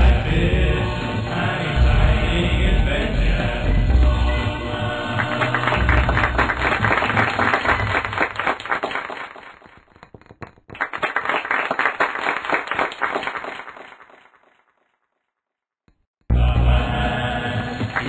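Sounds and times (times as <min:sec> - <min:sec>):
audience applause: 0:05.0 - 0:14.4, 0:17.8 - 0:18.0.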